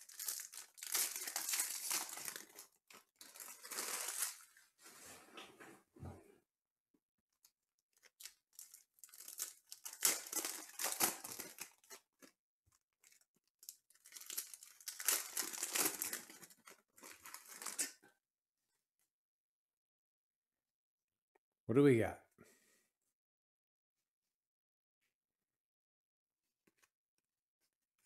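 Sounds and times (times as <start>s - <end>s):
foil wrappers tearing and crinkling: 0.0s - 4.6s, 8.1s - 12.3s, 13.0s - 18.0s.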